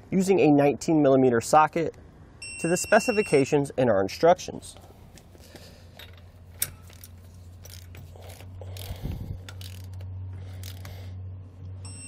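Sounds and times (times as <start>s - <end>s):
torque wrench ratcheting clicks: 6.9s - 10.9s.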